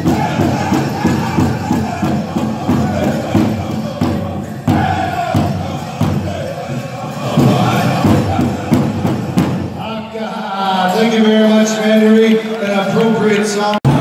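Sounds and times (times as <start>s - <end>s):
big drum beat: 0.0s - 10.1s
high chanted vocals: 0.0s - 13.3s.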